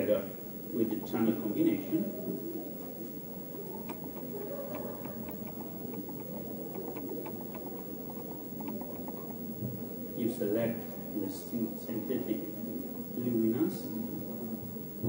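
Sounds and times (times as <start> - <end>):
faint room hum: 0.0 - 15.0
laptop keyboard clicking: 3.7 - 9.4.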